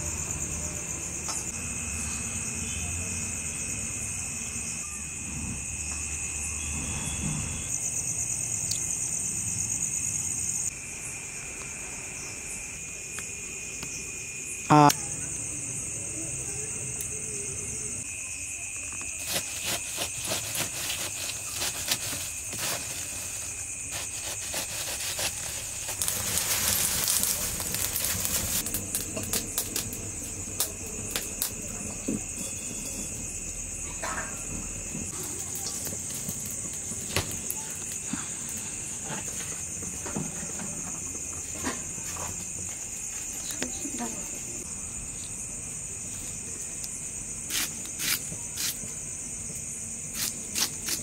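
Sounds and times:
crickets trilling: 0.0 - 51.0
wood fire crackling: 19.1 - 33.4, 35.0 - 40.1
ash being scraped from stove: 19.2 - 28.7.

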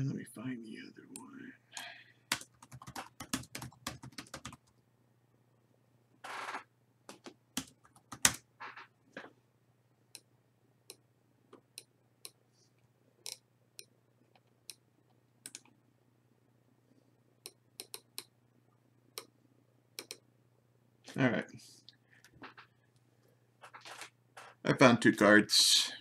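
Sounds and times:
faint steady hum: 0.0 - 26.0
mouse and keyboard clicks: 17.8 - 18.3, 20.0 - 20.2.

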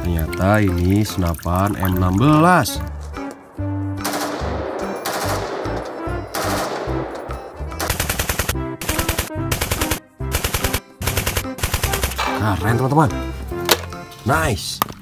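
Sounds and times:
rifle gunfire: 4.0 - 12.2.

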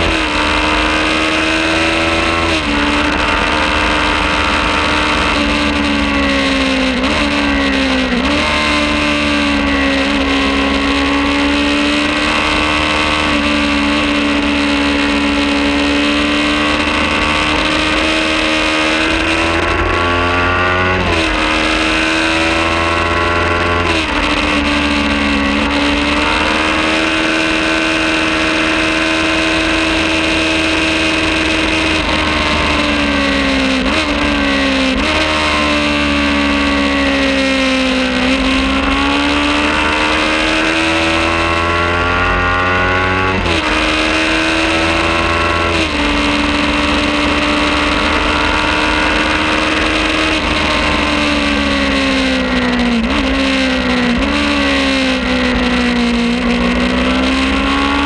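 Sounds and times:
gear change pitch jumps: 0.0 - 58.0
motorcycle engine at high revs: 0.0 - 58.0.

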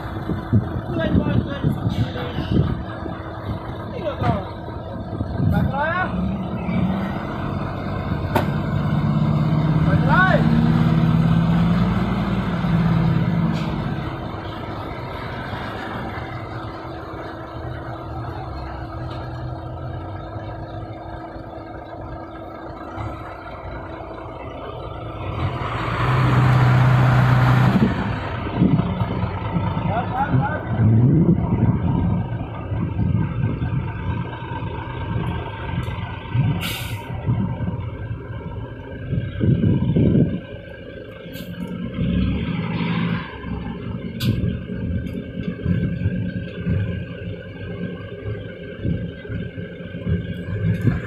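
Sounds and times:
diesel truck engine idling: 0.0 - 51.0
air hiss burst: 36.6 - 37.1.

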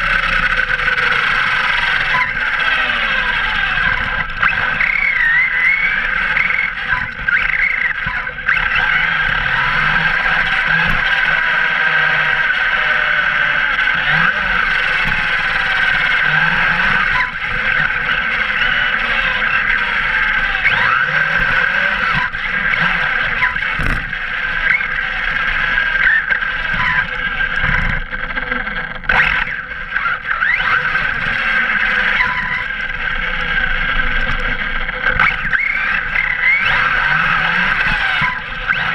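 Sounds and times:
electric motor whine: 0.0 - 38.9
tyre and road noise: 0.0 - 38.9.

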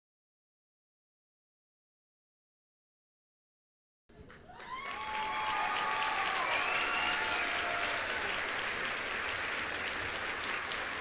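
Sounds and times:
crowd applause: 4.2 - 11.0
people cheering: 4.4 - 11.0.

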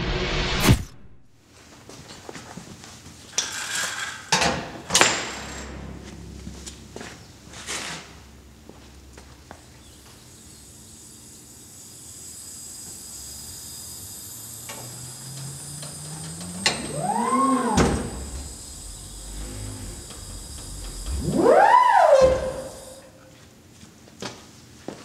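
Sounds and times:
swooping electronic tone: 5.2 - 10.9, 15.2 - 23.2
gas hissing through a hose: 9.8 - 23.2.

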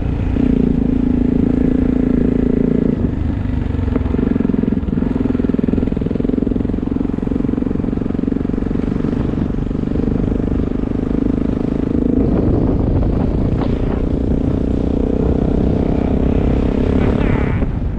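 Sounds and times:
motorcycle engine running: 0.0 - 17.9.

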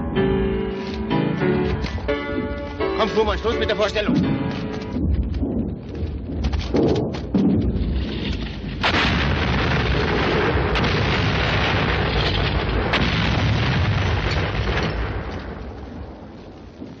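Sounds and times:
rumbling noise with cracks: 3.2 - 17.0
explosion blast: 4.9 - 17.0.

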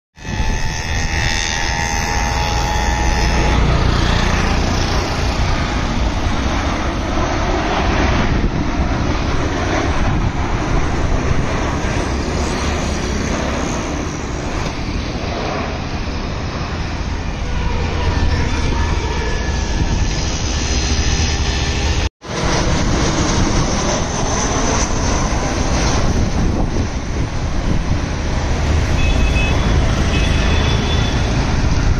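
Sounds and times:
jet airliner rumbling overhead: 0.2 - 31.9
road traffic: 0.2 - 31.9.

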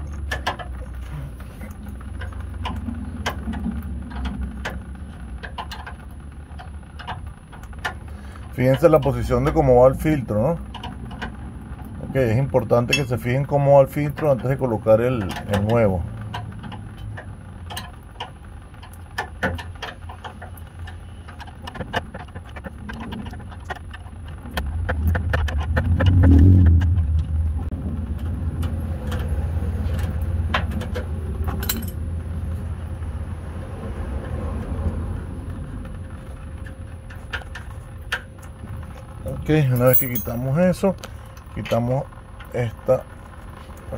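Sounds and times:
wrench and metal fittings clinking: 39.6 - 40.6.

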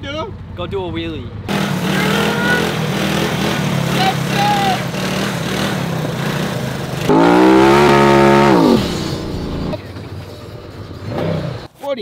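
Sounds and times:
atv engine revving: 1.5 - 10.0.

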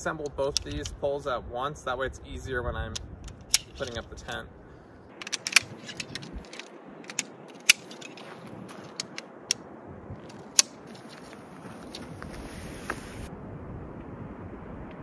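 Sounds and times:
wind hissing: 2.5 - 13.3
metal tent pole clicking: 3.3 - 4.4, 5.1 - 9.3, 10.3 - 12.1.

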